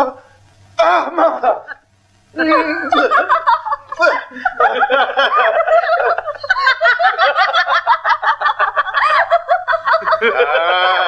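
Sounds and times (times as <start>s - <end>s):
people laughing heartily: 2.5s - 11.0s.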